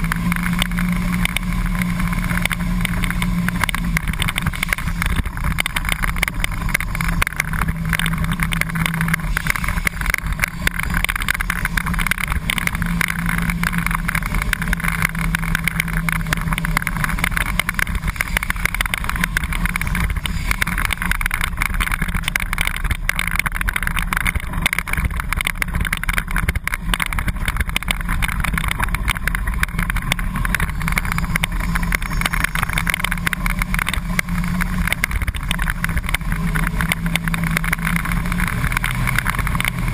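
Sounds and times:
bus engine running: 0.0s - 39.9s.

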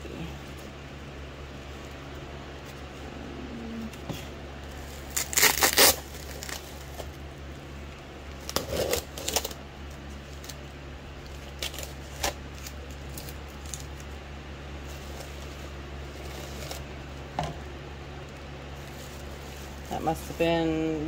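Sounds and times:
bubble wrap crinkling: 4.6s - 17.3s, 18.2s - 21.0s
small sharp crackles: 4.8s - 7.0s
tape ripping off: 4.8s - 7.1s, 8.4s - 9.6s.

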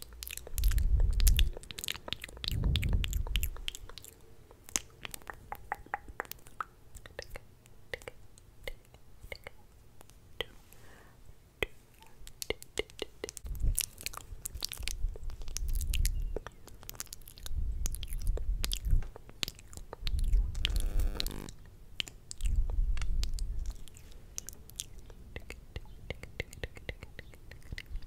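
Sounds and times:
wet lip and tongue clicks: 0.0s - 10.2s, 11.6s - 20.8s, 22.0s - 28.0s
low rumbles on microphone: 2.4s - 3.7s
short buzzy sound: 20.6s - 21.5s.

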